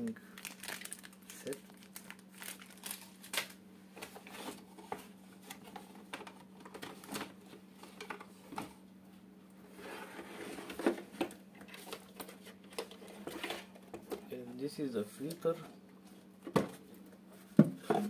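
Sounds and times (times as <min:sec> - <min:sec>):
packaging handled knocks and rustles: 0:00.4 - 0:08.7.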